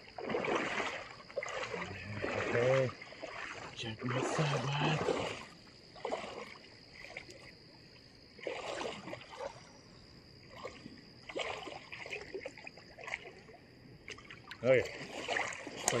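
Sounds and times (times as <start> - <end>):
water dripping: 0.0 - 5.4, 14.0 - 16.0
water sloshing and splashing: 0.0 - 16.0.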